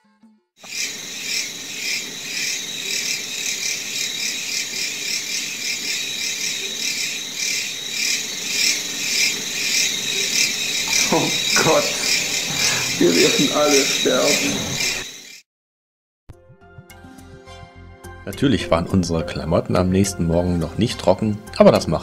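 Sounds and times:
insect chorus droning: 0:00.6 - 0:15.4.

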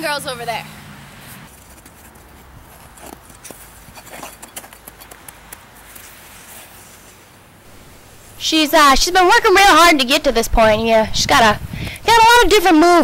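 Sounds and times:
skate blades scraping on ice: 0:01.2 - 0:07.5.

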